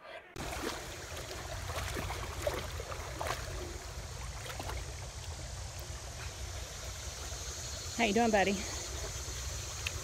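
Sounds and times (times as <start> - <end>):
dog splashing in water: 0.4 - 5.0
creek trickling over stones: 0.4 - 10.0.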